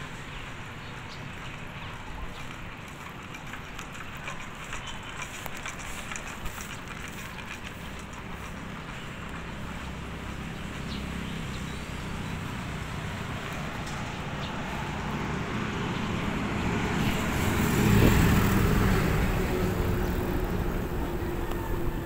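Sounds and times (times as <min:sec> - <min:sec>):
road traffic: 0:00.0 - 0:22.0
motor vehicle passing: 0:01.0 - 0:22.0
wind noise: 0:15.2 - 0:22.0.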